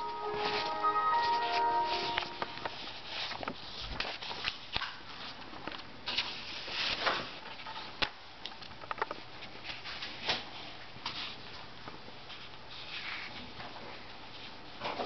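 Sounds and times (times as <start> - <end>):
paper rustling: 0.2 - 8.1, 12.3 - 13.6.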